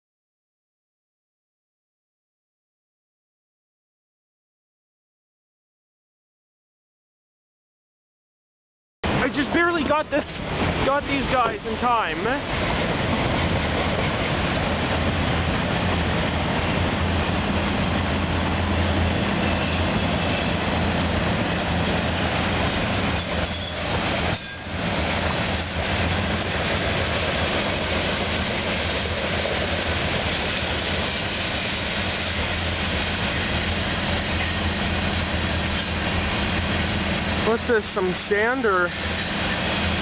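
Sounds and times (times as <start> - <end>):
freight train rolling on rails: 9.0 - 40.0.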